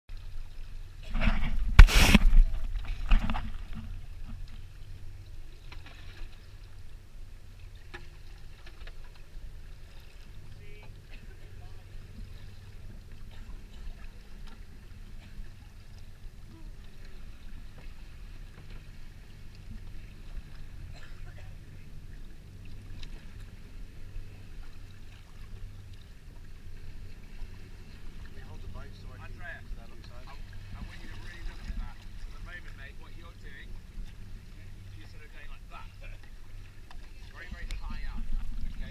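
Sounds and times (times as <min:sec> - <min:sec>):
faint splashes: 0:00.1 - 0:38.9
water lapping: 0:00.1 - 0:38.9
water splashing against camera: 0:00.2 - 0:06.7
low rumble: 0:00.8 - 0:08.4, 0:09.2 - 0:38.9.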